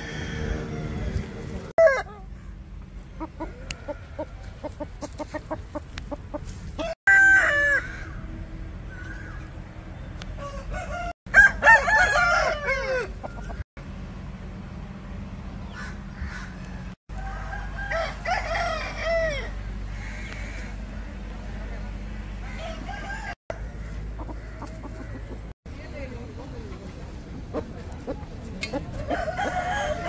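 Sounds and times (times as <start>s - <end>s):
rooster crowing: 0.0s - 2.0s, 6.8s - 8.2s, 10.4s - 13.4s, 17.1s - 20.6s, 22.5s - 23.7s, 29.0s - 30.0s
chicken clucking rapidly: 3.0s - 7.0s, 24.0s - 25.5s.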